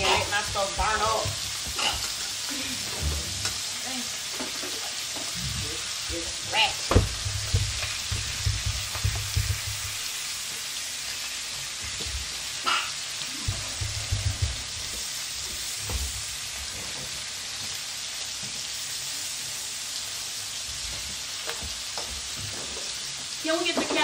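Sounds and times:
meat sizzling in a pan: 0:00.0 - 0:24.0
low knocks and bumps: 0:06.9 - 0:10.0, 0:13.5 - 0:14.8.

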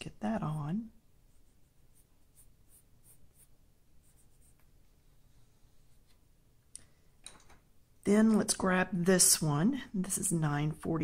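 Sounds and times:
coloured pencil scratching on paper: 0:01.3 - 0:06.2.

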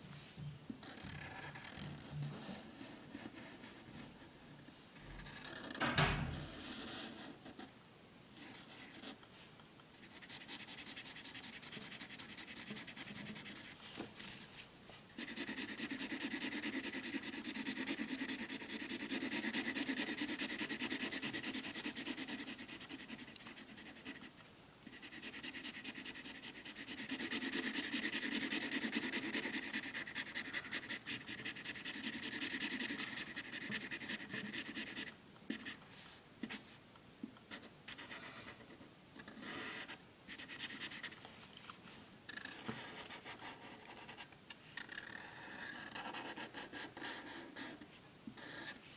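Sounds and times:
marker scrubbing on paper: 0:10.0 - 0:14.4, 0:15.1 - 0:24.3, 0:24.9 - 0:35.8, 0:37.5 - 0:41.2, 0:44.8 - 0:48.9.

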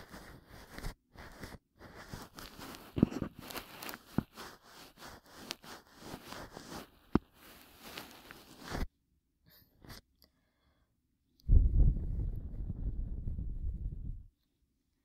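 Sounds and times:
cotton puff rustling on microphone: 0:00.0 - 0:08.9
low thumps: 0:11.5 - 0:14.3.

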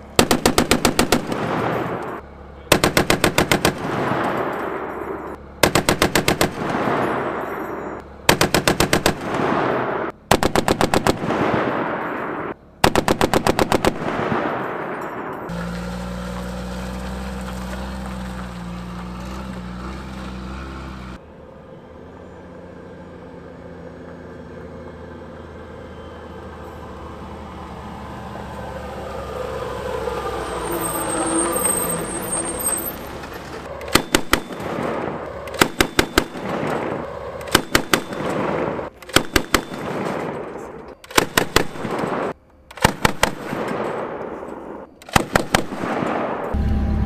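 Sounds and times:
armoured vehicle diesel engine: 0:00.0 - 0:41.3, 0:46.2 - 0:47.0
automatic gunfire bursts: 0:00.2 - 0:02.0, 0:02.7 - 0:04.5, 0:05.6 - 0:07.3, 0:08.3 - 0:12.0, 0:12.8 - 0:14.7, 0:33.8 - 0:40.4, 0:41.1 - 0:43.9.

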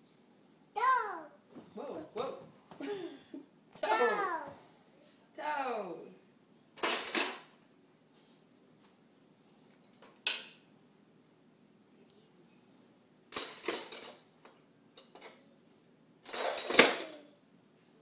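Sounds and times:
silverware clattering into drawer: 0:06.8 - 0:07.5, 0:13.3 - 0:14.2, 0:16.2 - 0:17.2.

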